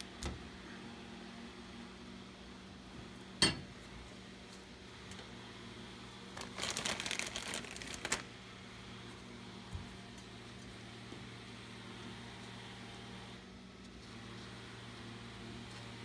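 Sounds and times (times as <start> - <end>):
plastic bag crinkling: 6.3 - 8.3.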